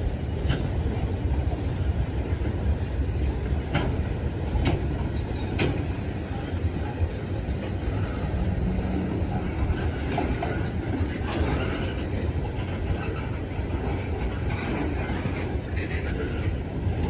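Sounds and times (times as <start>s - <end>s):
sharp clicks of train wheels: 0.0s - 17.0s
train wheels rumbling on rails: 0.0s - 17.0s.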